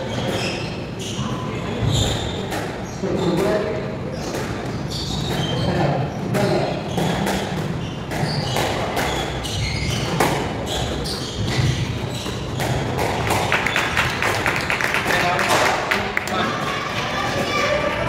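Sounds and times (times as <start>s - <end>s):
shoes squeaking on wooden floor: 0.0s - 3.6s, 4.2s - 13.8s
squash ball hits echoing: 6.3s - 14.2s.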